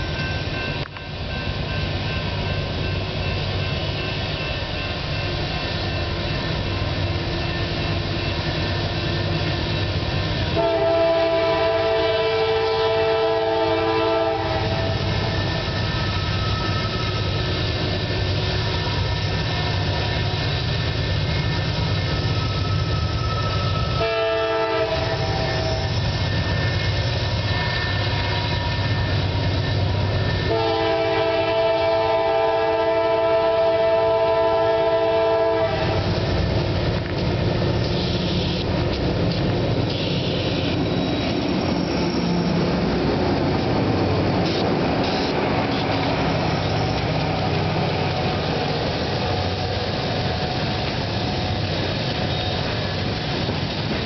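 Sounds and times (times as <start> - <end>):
diesel locomotives droning: 0.0 - 54.0
locomotive air horn: 10.5 - 15.3, 23.8 - 26.0, 27.4 - 29.0, 30.4 - 36.1, 39.9 - 40.7.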